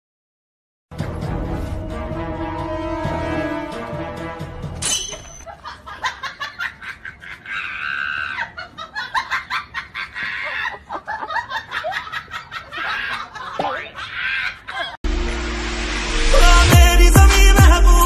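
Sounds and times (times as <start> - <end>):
person laughing: 5.5 - 15.0.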